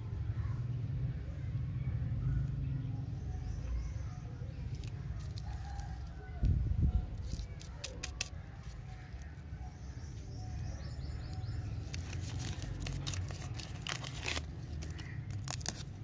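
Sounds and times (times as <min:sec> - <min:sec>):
plastic wrapper crinkling and tearing: 0:07.2 - 0:09.3, 0:11.8 - 0:16.0.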